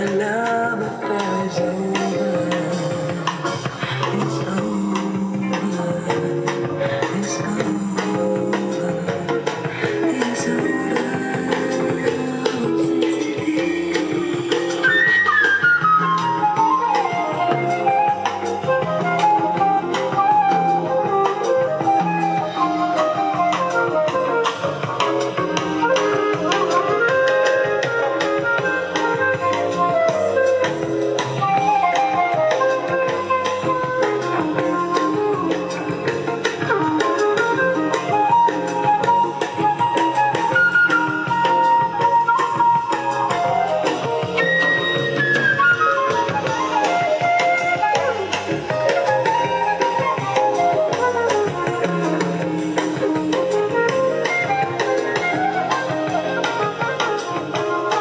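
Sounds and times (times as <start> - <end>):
guitar music with drums: 0.0 - 58.0.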